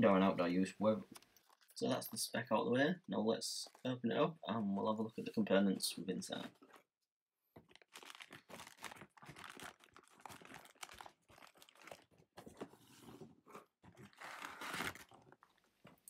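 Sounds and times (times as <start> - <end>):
plastic packaging crinkling: 7.6 - 12.7, 13.9 - 15.6.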